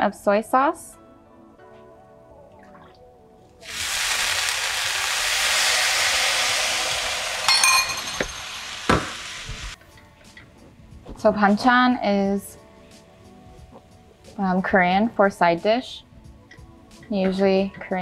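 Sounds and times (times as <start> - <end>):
food sizzling in hot pan: 3.6 - 9.8
ringing metallic clink: 7.5 - 8.6.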